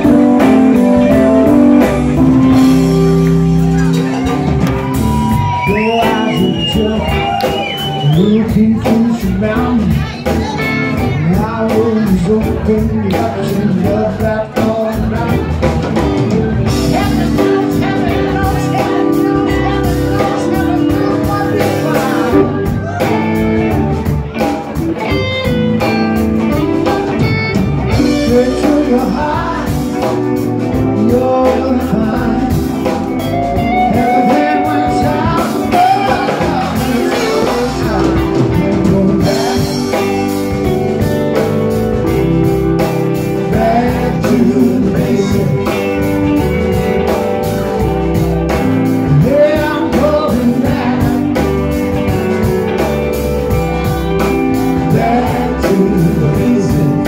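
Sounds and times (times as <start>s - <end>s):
person singing: 0.0s - 24.4s, 25.4s - 47.9s, 48.5s - 57.0s
blues-rock band playing: 0.0s - 57.0s.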